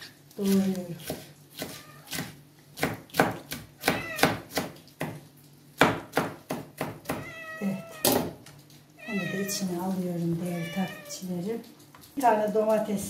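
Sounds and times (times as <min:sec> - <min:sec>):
knife chopping on cutting board: 0:01.0 - 0:05.2, 0:05.8 - 0:07.2.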